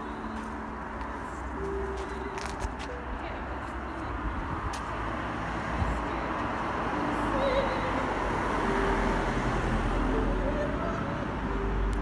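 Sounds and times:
passing cars hum: 0.0 - 12.0.

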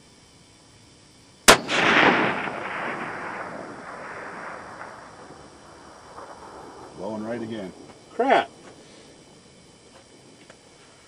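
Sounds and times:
rifle shot with echo: 1.5 - 7.9.

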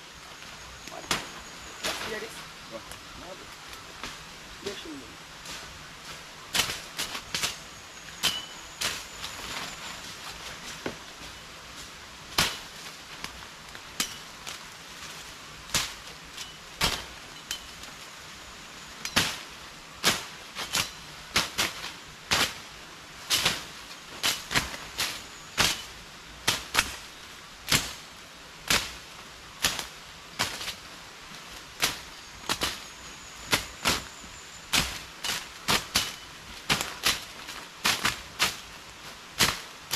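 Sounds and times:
machetes chopping through brush: 6.5 - 11.3, 12.3 - 15.1, 15.7 - 17.8, 19.0 - 22.7, 23.3 - 27.1, 27.7 - 30.9, 31.6 - 39.9.

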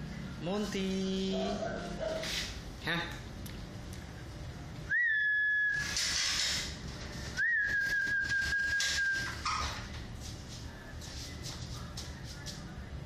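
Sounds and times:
person whistling high notes: 4.9 - 5.9, 7.4 - 9.4.

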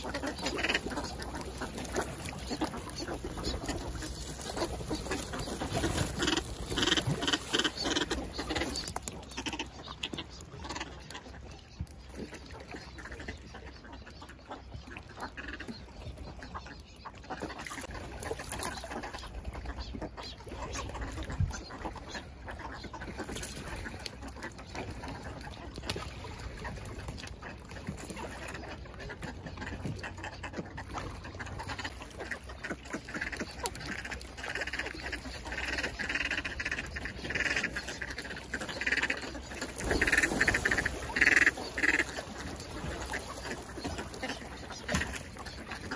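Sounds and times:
water splashing: 0.0 - 13.7, 14.4 - 45.9
ducks quacking: 0.0 - 45.9
wings flapping: 0.2 - 9.1, 39.6 - 45.2.

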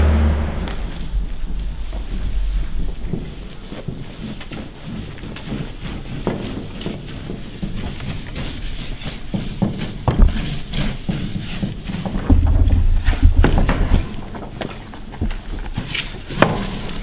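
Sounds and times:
paper rustling: 1.0 - 17.0
knocks on panels: 9.3 - 14.7.

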